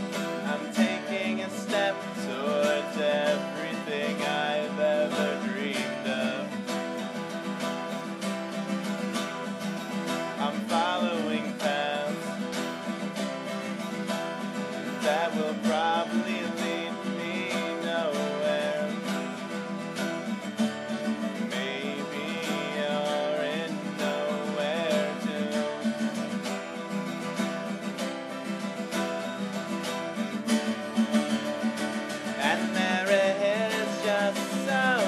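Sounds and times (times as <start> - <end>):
acoustic guitar strumming: 0.0 - 35.0
person singing: 0.2 - 6.8, 10.2 - 12.6, 14.7 - 19.4, 21.2 - 26.3, 32.2 - 35.0.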